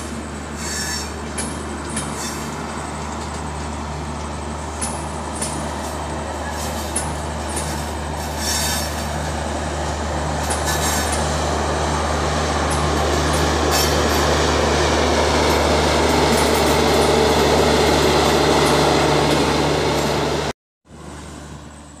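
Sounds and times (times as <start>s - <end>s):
train rolling past: 0.0s - 22.0s
wheel clicks and squeals: 0.6s - 9.2s.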